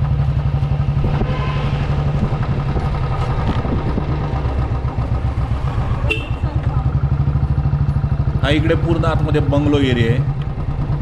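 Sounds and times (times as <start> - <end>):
motorbike engine running: 0.0 - 11.0.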